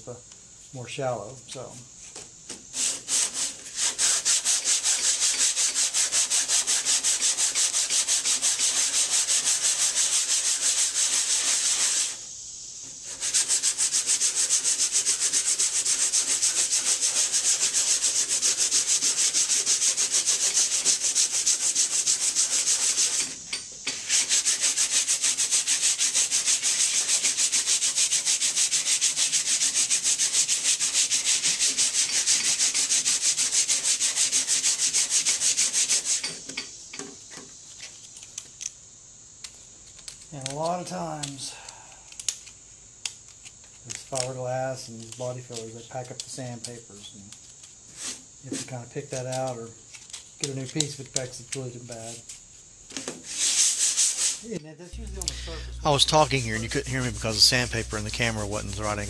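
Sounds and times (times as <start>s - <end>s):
sandpaper rasping on filler: 2.0s - 12.2s, 13.0s - 36.4s, 47.9s - 52.4s, 53.1s - 59.0s.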